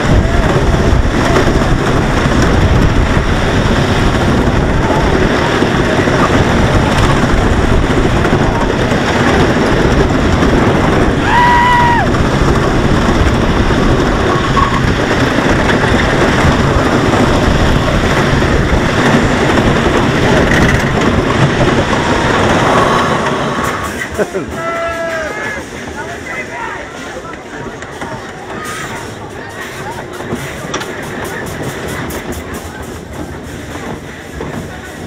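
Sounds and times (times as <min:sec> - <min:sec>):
wind on microphone: 0:00.0 - 0:24.0
roller coaster wheels rumbling: 0:00.0 - 0:35.0.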